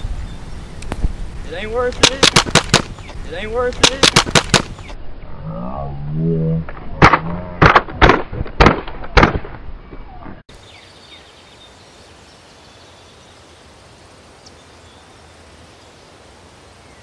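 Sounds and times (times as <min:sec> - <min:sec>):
faint outdoor background noise: 0:00.0 - 0:17.0
pistol gunshot: 0:02.0 - 0:03.0, 0:03.8 - 0:04.8.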